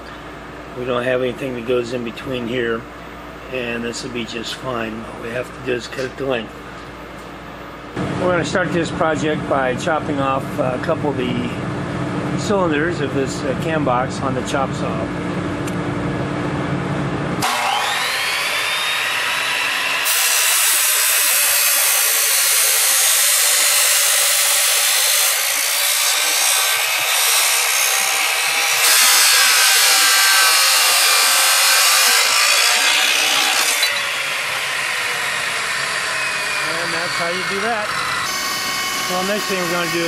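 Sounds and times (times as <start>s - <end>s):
chop saw motor whine: 17.4s - 40.0s
saw blade grinding through metal: 17.4s - 40.0s.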